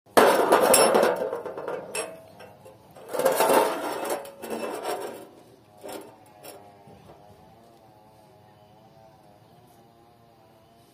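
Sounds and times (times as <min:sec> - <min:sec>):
steel pipes scraping on steel plate: 0:00.1 - 0:06.7
faint metallic ring: 0:00.6 - 0:06.6.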